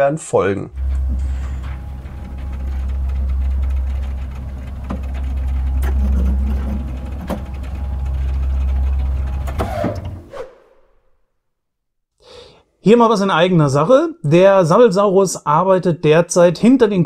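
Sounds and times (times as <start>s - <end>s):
low mechanical hum: 0.7s - 10.3s.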